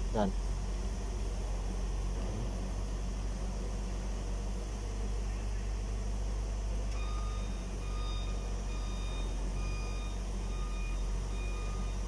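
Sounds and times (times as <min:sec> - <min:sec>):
diesel engine humming: 0:00.0 - 0:12.0
electronic alarm beeping: 0:07.0 - 0:12.0.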